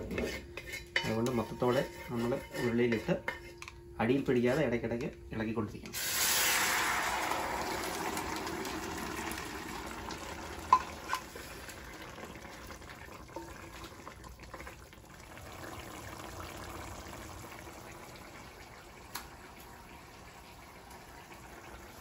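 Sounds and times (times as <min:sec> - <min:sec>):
curry bubbling: 0:06.1 - 0:22.0.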